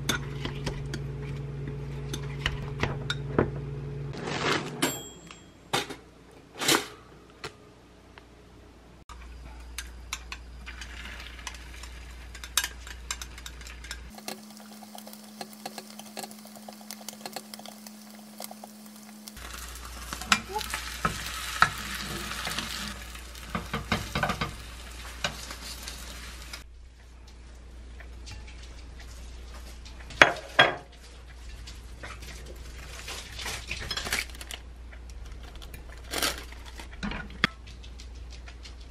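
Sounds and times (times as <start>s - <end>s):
egg sizzling in a pan: 10.6s - 26.7s
spatula on pan: 10.7s - 26.6s
chopsticks tapping and scraping pan: 20.0s - 26.0s.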